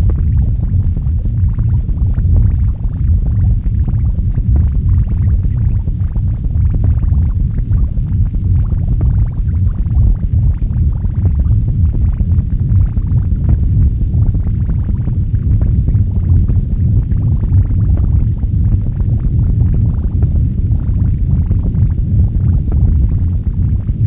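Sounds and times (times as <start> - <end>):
low noise rumble: 0.0 - 24.0.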